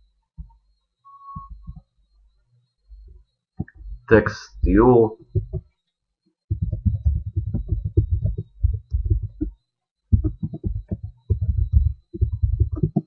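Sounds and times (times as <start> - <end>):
keyboard typing: 3.6 - 5.7, 6.5 - 13.0.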